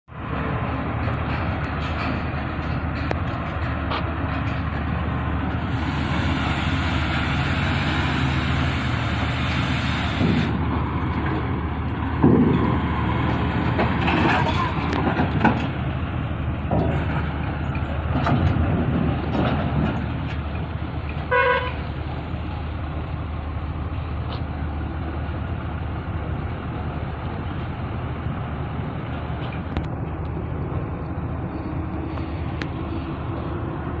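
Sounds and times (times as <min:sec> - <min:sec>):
diesel engine running under load: 0:00.1 - 0:34.0
vehicle horn toot: 0:21.3 - 0:21.8.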